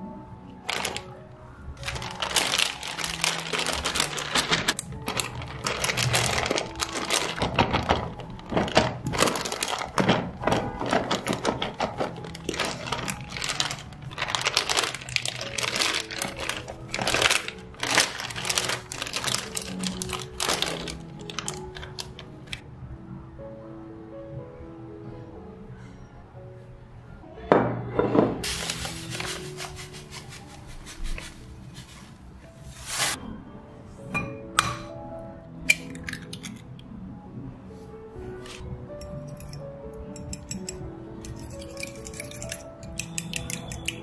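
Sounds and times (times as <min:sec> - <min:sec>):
soft background music: 0:00.0 - 0:44.0
plastic bag crinkling: 0:00.7 - 0:01.1, 0:01.8 - 0:22.6, 0:28.4 - 0:33.2.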